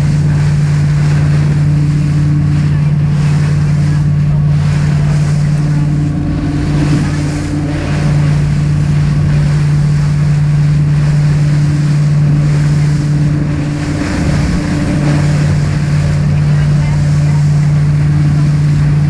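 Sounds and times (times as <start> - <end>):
boat motor droning: 0.0 - 19.0
water rushing against hull: 0.0 - 19.0
wind on microphone: 0.0 - 19.0.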